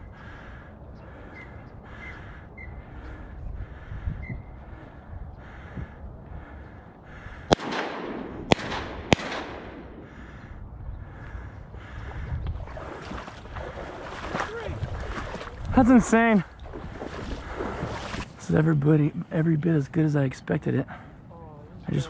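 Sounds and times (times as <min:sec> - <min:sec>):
shotgun shots with echo: 0:07.5 - 0:10.2.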